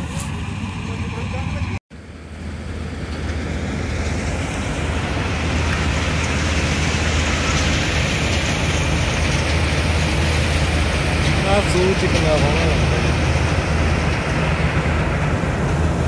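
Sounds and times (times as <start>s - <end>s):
tractor engine drone: 0.0s - 16.0s.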